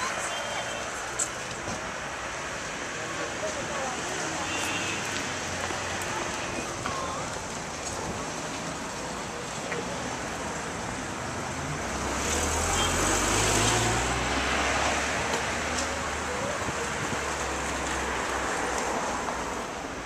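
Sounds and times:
vehicle driving past: 11.6s - 15.2s.

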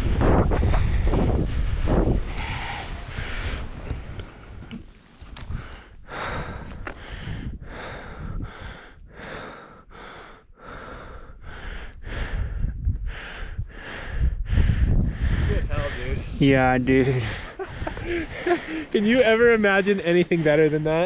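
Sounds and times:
wind rumble on microphone: 0.0s - 9.3s, 11.0s - 18.7s
person breathing hard: 5.4s - 16.4s, 17.1s - 19.0s.

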